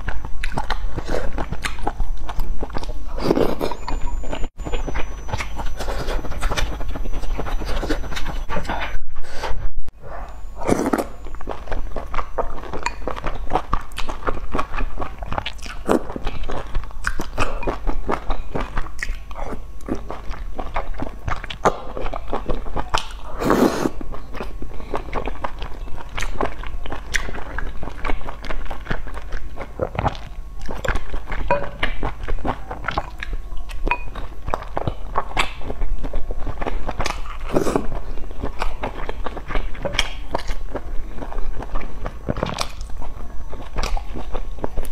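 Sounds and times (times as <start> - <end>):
person slurping noodles: 23.2 - 24.0.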